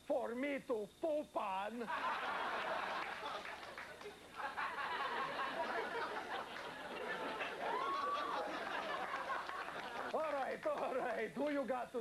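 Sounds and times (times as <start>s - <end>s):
audience laughing and applauding: 1.9s - 11.0s.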